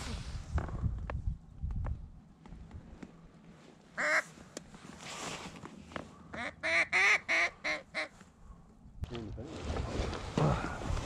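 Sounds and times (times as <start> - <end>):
duck quacking: 6.4 - 8.1.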